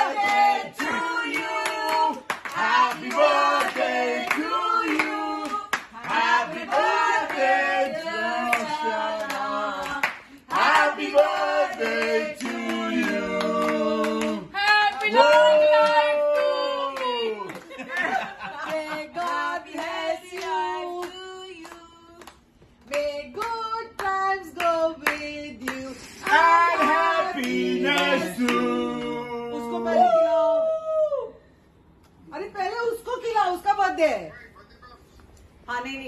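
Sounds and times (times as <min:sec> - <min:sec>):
people singing together: 0:00.0 - 0:14.6, 0:18.0 - 0:22.1, 0:22.9 - 0:29.9
hands clapping: 0:08.5 - 0:28.6.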